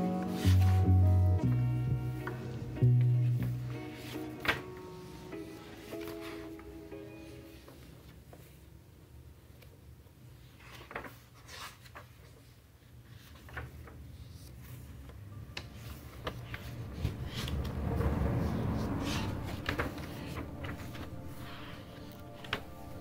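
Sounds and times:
notebook pages turning: 0:10.5 - 0:23.0.

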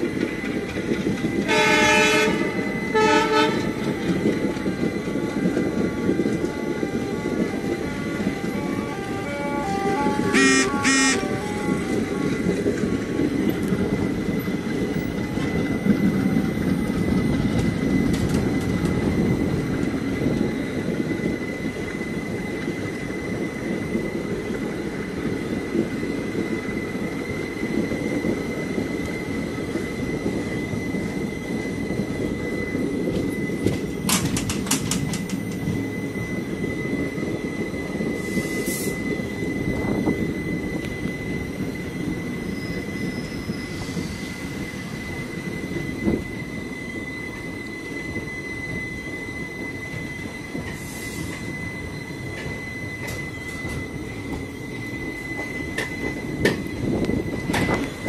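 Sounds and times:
train wheels rumbling on track: 0:00.0 - 0:58.0
high-pitched squeal: 0:04.8 - 0:13.6.

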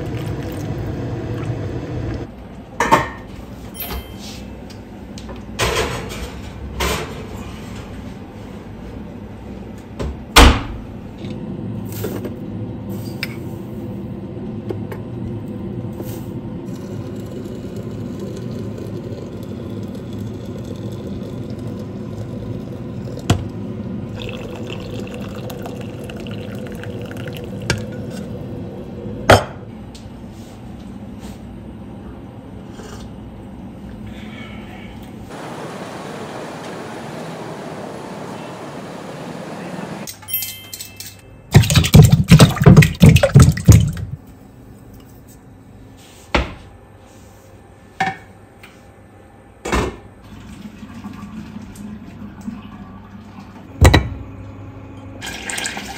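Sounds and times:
water pouring into teapot: 0:00.0 - 0:01.6, 0:17.0 - 0:23.4, 0:24.1 - 0:28.3, 0:55.2 - 0:55.9.

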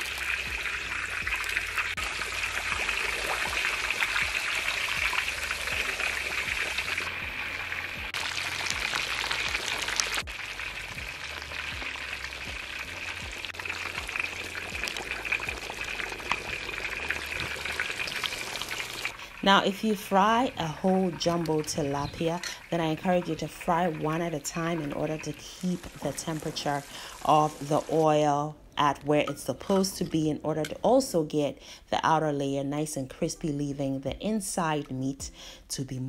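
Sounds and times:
fish deep-frying in oil: 0:00.0 - 0:28.2.

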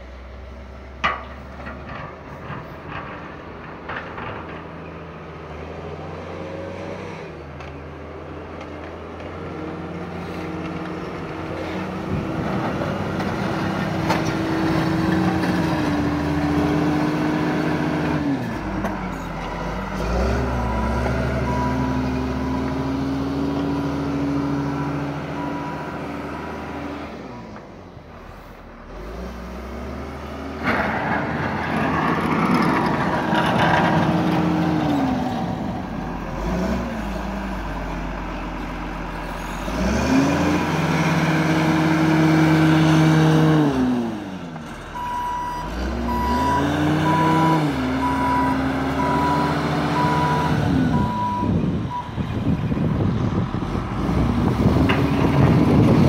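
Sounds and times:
plow blade scraping: 0:00.9 - 0:07.8, 0:08.4 - 0:56.0
loader engine revving: 0:01.4 - 0:56.0
reversing alarm beeping: 0:20.6 - 0:22.7, 0:24.8 - 0:26.0, 0:45.0 - 0:52.2.

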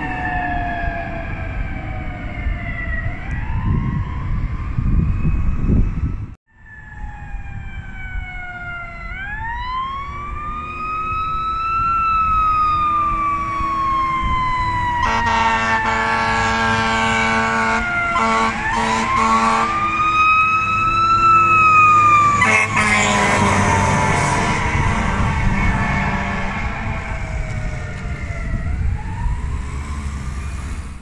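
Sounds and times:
fire engine siren wailing: 0:00.0 - 0:31.0
low rumble of traffic: 0:00.0 - 0:31.0
fire engine horn blasts: 0:14.9 - 0:20.2, 0:22.2 - 0:27.6.

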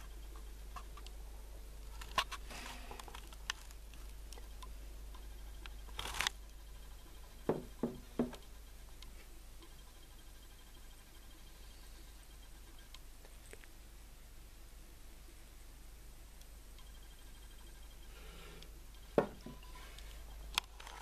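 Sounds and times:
low steady hum: 0:00.0 - 0:21.0
dull knocks: 0:07.5 - 0:08.4.

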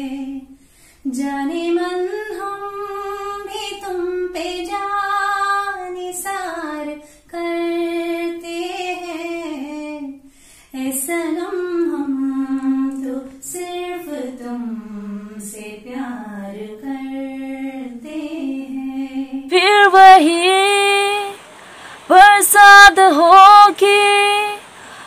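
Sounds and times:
woman singing with high voice: 0:00.0 - 0:10.2, 0:10.8 - 0:25.0
woman singing with low voice: 0:00.0 - 0:25.0.

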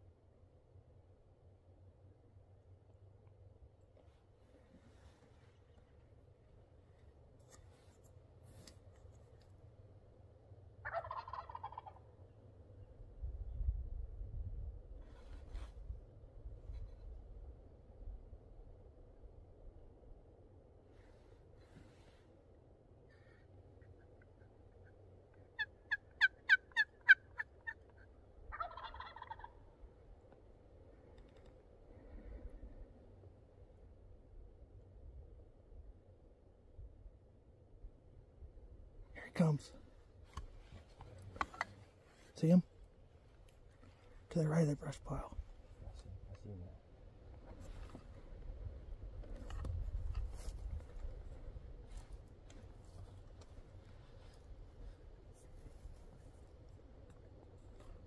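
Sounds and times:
turkey gobbling: 0:10.8 - 0:12.1, 0:23.2 - 0:29.7.

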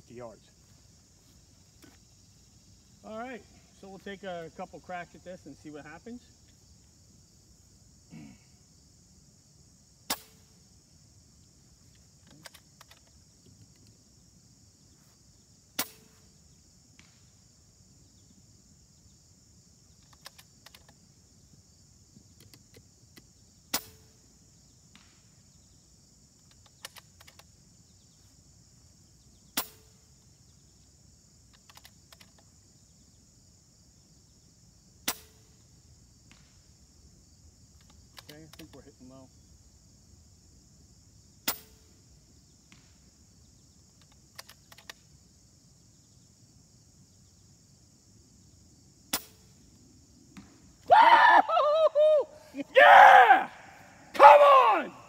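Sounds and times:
insects chirring: 0:00.0 - 0:55.0
rifle bolt clicks: 0:44.0 - 0:45.0.

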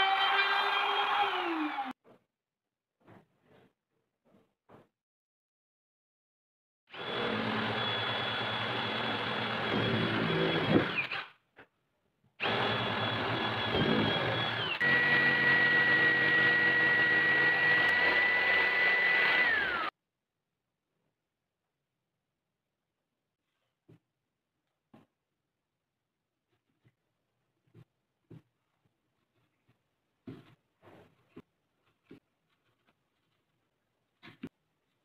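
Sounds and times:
electric drill boring into wood: 0:00.0 - 0:01.9, 0:06.9 - 0:11.3, 0:12.4 - 0:19.9.

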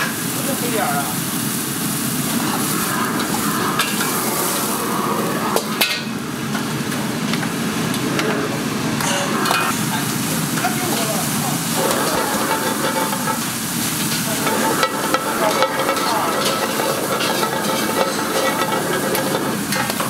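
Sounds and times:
wok burner hissing: 0:00.0 - 0:20.0
water bubbling: 0:02.2 - 0:05.8
steel ladle clanking on wok: 0:11.8 - 0:20.0.

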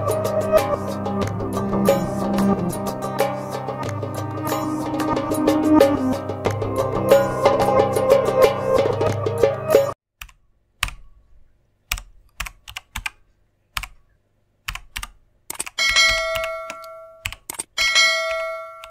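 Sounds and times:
sharp clicks: 0:14.6 - 0:17.7.

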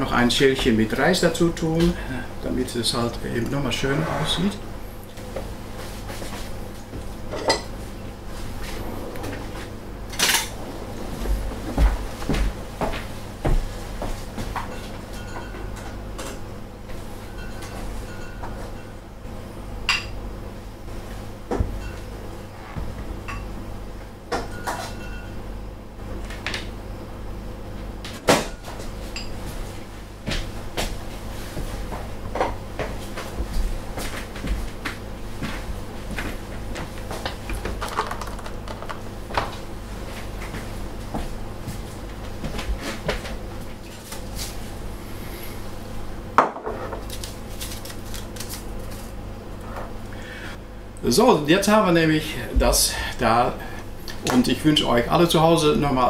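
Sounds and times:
low hum: 0:07.0 - 0:12.9.

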